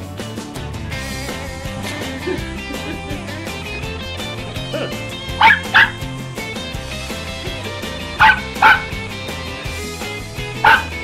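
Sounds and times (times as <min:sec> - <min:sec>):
rock music with guitar: 0:00.0 - 0:11.0
small dog yapping: 0:04.8 - 0:06.0, 0:08.2 - 0:08.9, 0:10.6 - 0:10.9.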